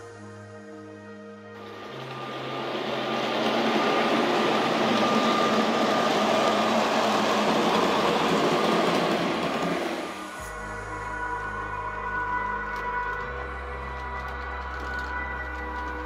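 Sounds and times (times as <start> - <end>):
model train wheels and motors running: 1.6 - 11.2, 12.2 - 16.0.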